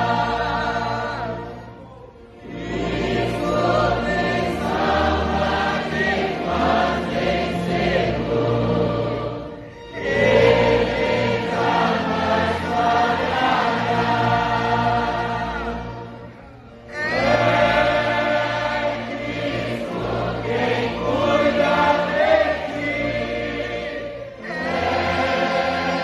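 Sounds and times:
congregation singing a hymn: 0:00.0 - 0:26.0.

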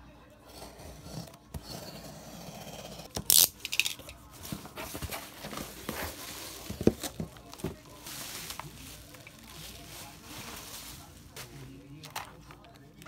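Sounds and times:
cardboard flaps rustling and knocking: 0:04.4 - 0:08.9.

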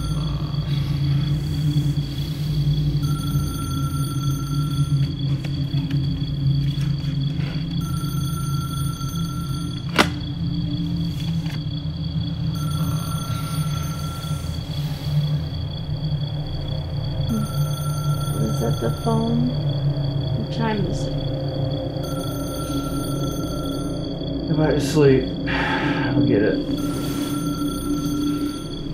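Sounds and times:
steady low hum: 0:00.0 - 0:28.9
telephone ringing: 0:03.0 - 0:05.2, 0:07.8 - 0:10.2, 0:17.3 - 0:19.3, 0:22.0 - 0:24.1, 0:26.8 - 0:28.9.

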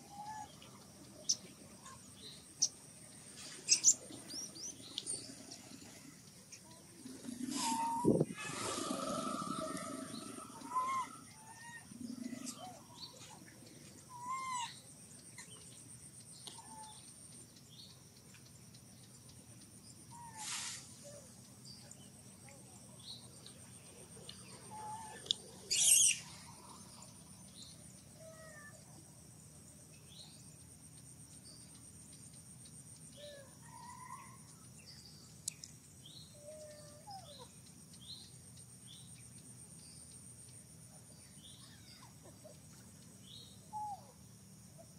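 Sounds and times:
high insect drone: 0:00.0 - 0:44.9
short chirping calls: 0:19.8 - 0:28.8.

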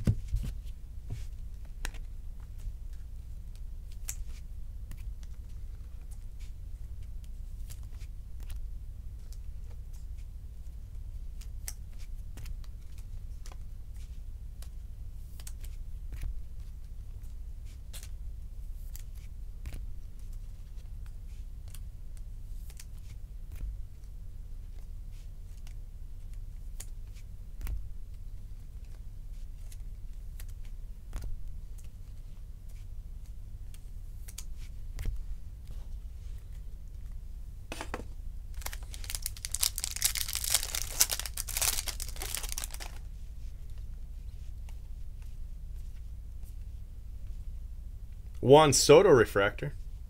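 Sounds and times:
steady low hum: 0:00.0 - 0:50.0
cards being flipped: 0:38.6 - 0:43.0.

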